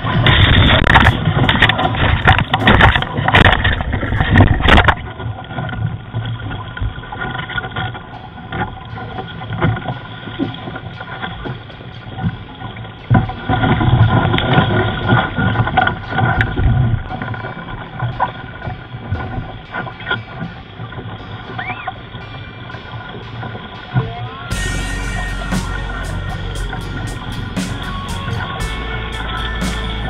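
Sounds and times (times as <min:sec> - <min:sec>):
wind and water noise: 0:00.0 - 0:30.0.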